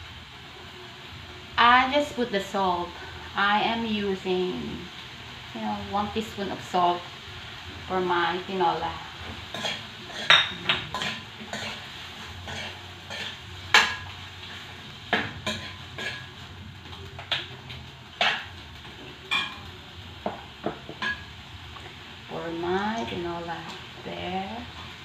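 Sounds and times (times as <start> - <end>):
faint sizzle: 0.0 - 25.0
utensil scraping pot: 9.5 - 14.1, 15.4 - 17.5.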